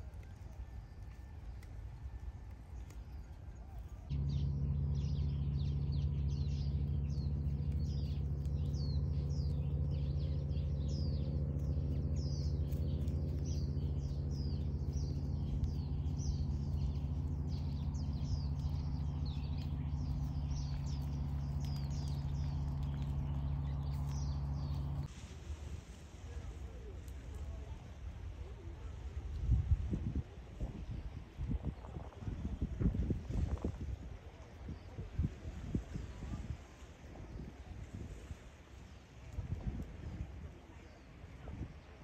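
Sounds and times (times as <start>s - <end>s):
birds chirping: 0.0s - 25.1s
steady low hum: 0.0s - 42.0s.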